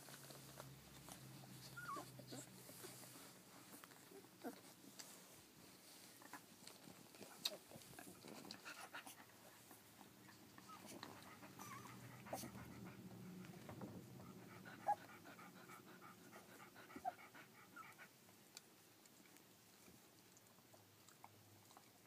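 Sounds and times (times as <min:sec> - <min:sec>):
dog panting: 0:06.3 - 0:18.3.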